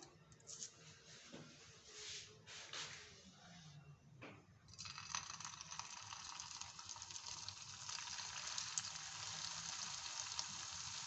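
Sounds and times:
food frying in hot oil: 0:04.7 - 0:11.0.

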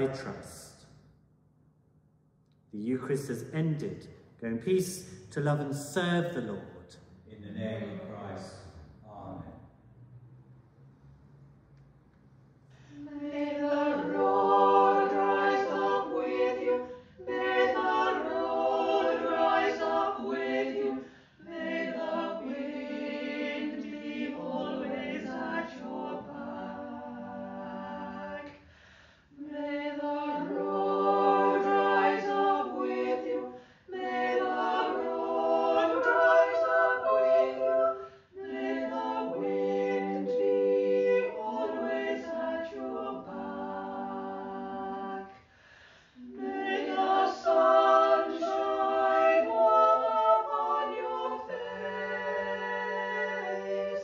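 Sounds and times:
choir singing a hymn: 0:12.8 - 0:54.0.

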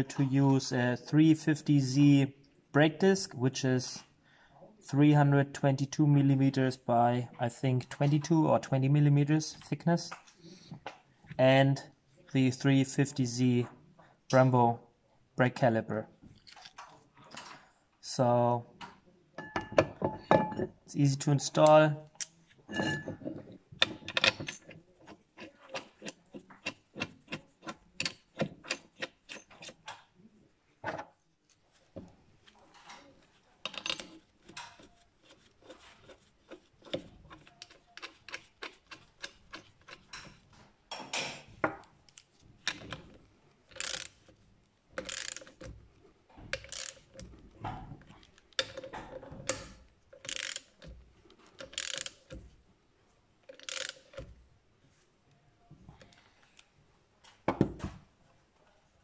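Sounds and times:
ratchet wrench clicking: 0:43.7 - 0:44.2, 0:45.0 - 0:45.6, 0:46.6 - 0:47.1, 0:50.2 - 0:50.8, 0:51.6 - 0:52.3, 0:53.5 - 0:54.2.

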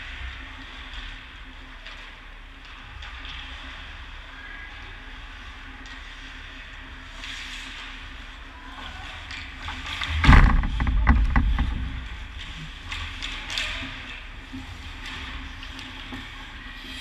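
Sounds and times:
hockey sticks and puck clacking: 0:08.7 - 0:14.3.

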